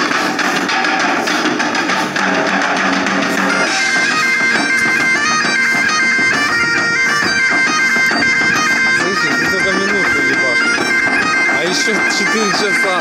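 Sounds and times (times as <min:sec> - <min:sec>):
steady drone: 0:00.0 - 0:13.0
reedy wind instrument melody: 0:03.0 - 0:13.0.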